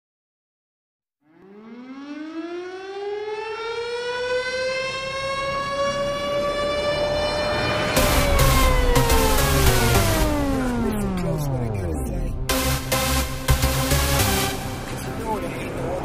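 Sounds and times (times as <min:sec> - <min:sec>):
electronic drum beats: 0:07.9 - 0:15.3.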